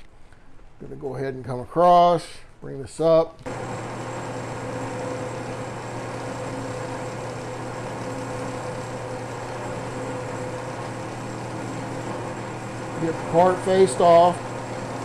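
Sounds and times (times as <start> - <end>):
metal lathe running: 3.5 - 15.0.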